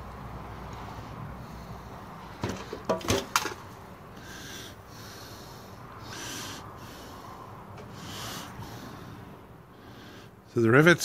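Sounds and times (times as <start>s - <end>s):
soft breaths: 0.6s - 2.4s, 4.0s - 10.6s.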